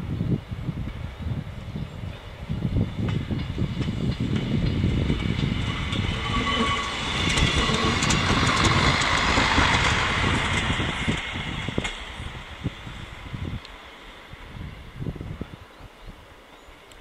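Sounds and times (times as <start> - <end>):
diesel railcar rumble: 0.0 - 17.0
train wheel clicks: 3.0 - 12.2.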